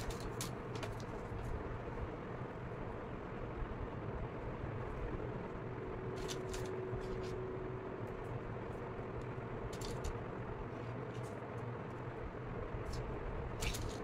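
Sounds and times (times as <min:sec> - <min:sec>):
wooden sticks clicking on paper: 0:00.0 - 0:01.1
low background hum: 0:00.0 - 0:14.0.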